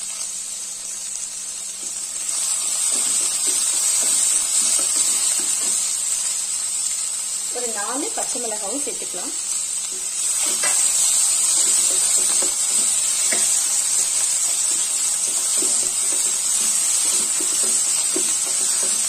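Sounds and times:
vegetables sizzling in oil: 0:00.0 - 0:19.0
spatula scraping pan: 0:10.0 - 0:14.0.

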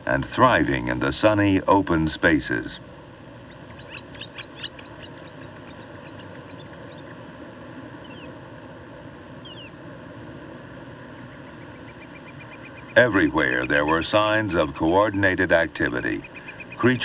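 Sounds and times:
steady outdoor hiss: 0:00.0 - 0:17.0
small birds chirping: 0:02.6 - 0:08.4, 0:09.3 - 0:09.8, 0:10.9 - 0:17.0.

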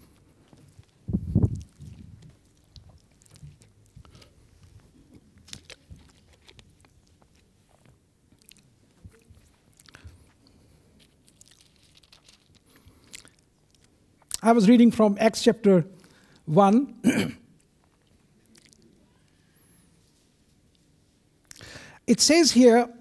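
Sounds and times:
plastic bottle crinkling: 0:05.4 - 0:07.4, 0:11.3 - 0:13.3.

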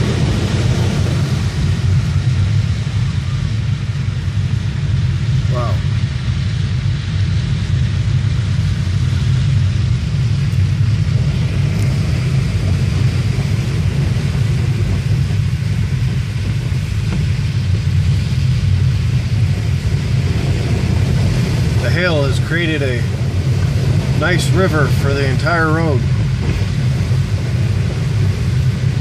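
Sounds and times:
engine and road rumble: 0:00.0 - 0:29.0
tyres hissing through slush: 0:10.4 - 0:29.0.

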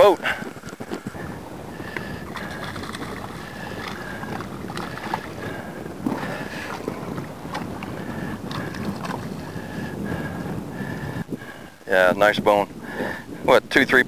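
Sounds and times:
water lapping and splashing: 0:00.0 - 0:11.7
wind buffeting microphone: 0:00.0 - 0:14.0
fish thrashing at surface: 0:02.0 - 0:07.9.

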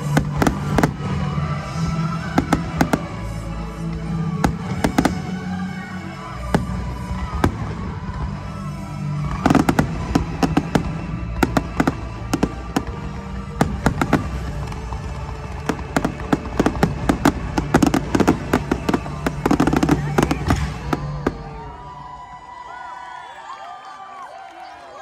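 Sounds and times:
fireworks bursting with sharp bangs: 0:00.0 - 0:22.2
music soundtrack: 0:00.0 - 0:23.1.

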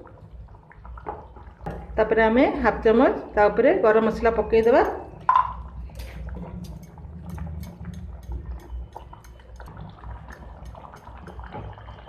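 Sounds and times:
thick gravy bubbling and popping: 0:00.0 - 0:03.2, 0:04.2 - 0:12.0
spatula stirring wetly: 0:06.4 - 0:11.6.

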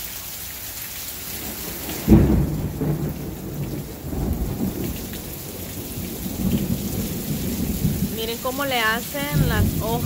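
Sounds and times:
heavy rain pouring: 0:00.0 - 0:10.0
thunder rumbling: 0:01.3 - 0:10.0.

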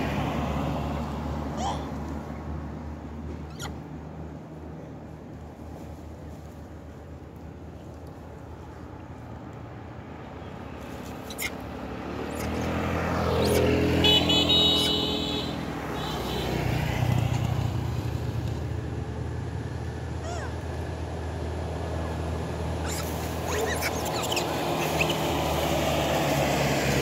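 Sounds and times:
vehicle engine passing: 0:10.1 - 0:20.2, 0:21.0 - 0:27.0
vehicle horn: 0:13.9 - 0:16.7.

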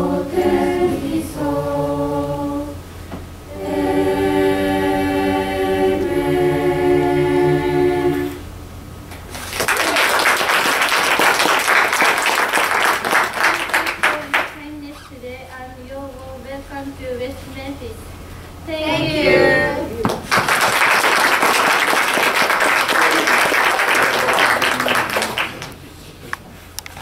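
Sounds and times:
choir singing unaccompanied: 0:00.0 - 0:02.8, 0:03.5 - 0:08.5, 0:18.7 - 0:20.0
audience applauding: 0:09.3 - 0:14.6, 0:20.1 - 0:25.8.

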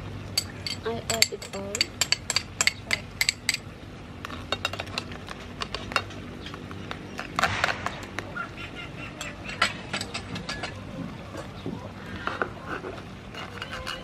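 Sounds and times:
metal spoon clinking on bowl: 0:00.4 - 0:03.6.

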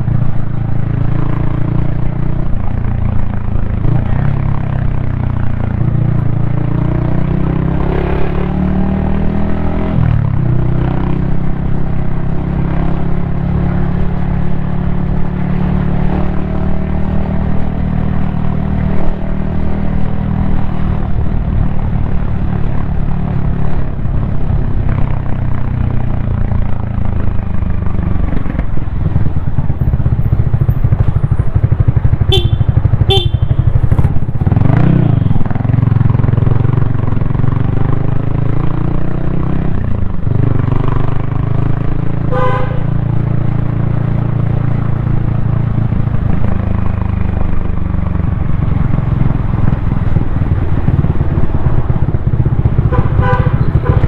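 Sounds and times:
motorcycle engine running: 0:00.0 - 0:54.0
vehicle horns tooting: 0:32.3 - 0:33.8, 0:42.3 - 0:42.9, 0:52.9 - 0:54.0.

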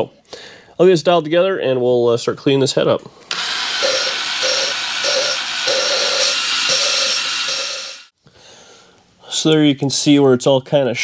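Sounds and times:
cordless drill motor: 0:03.3 - 0:08.1
valve grinding against seat: 0:03.3 - 0:08.1.

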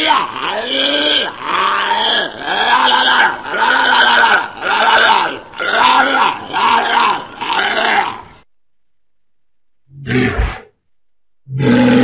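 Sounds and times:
walrus calling: 0:00.0 - 0:08.4.

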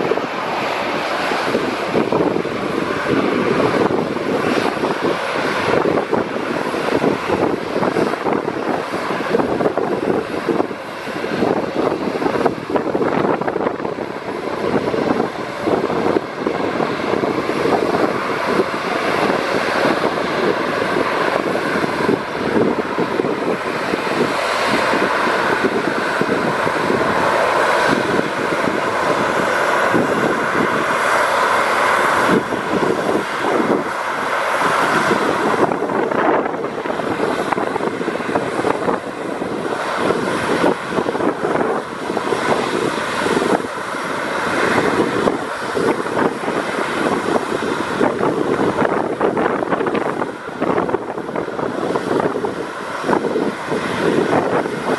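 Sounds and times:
jet airliner taxiing past: 0:00.0 - 0:54.9
jet engines running: 0:00.0 - 0:54.9.

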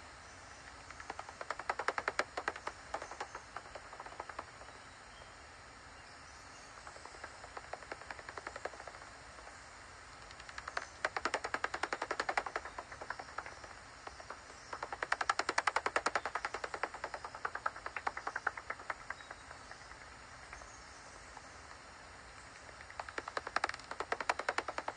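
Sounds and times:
bat detector clicks: 0:22.7 - 0:24.9.

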